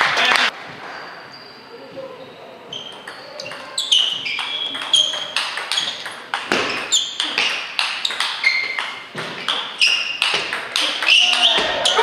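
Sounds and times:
shoes squeaking on floor: 0.7 - 12.0
ping pong ball clicks: 2.9 - 11.7.

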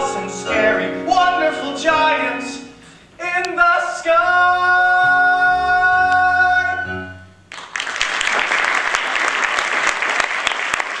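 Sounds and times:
man singing: 0.0 - 7.1
music accompaniment: 0.0 - 7.9
audience applause: 7.5 - 11.0.

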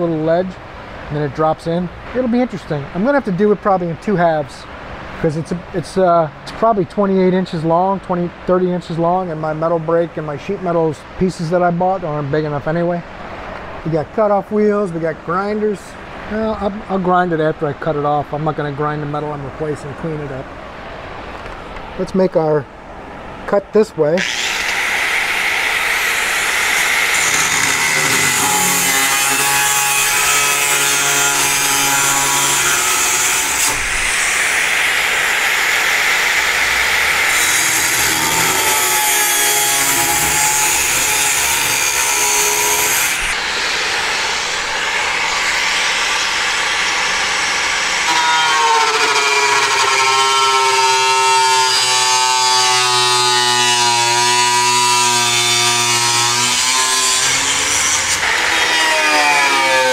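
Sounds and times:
cutoff wheel cutting sheet metal: 24.2 - 59.9.

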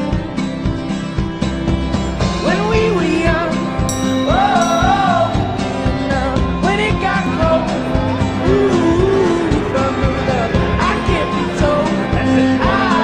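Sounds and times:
song with singer and band: 0.0 - 13.0.

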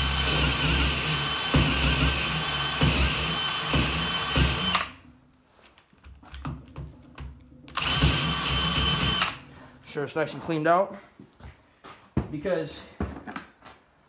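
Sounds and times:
cordless drill boring into wood: 0.0 - 5.0, 7.7 - 9.4.

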